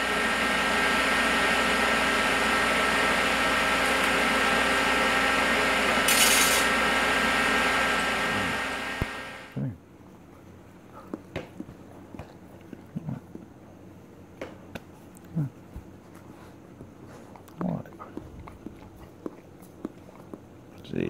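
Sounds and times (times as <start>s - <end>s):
welder humming: 0.0s - 9.6s.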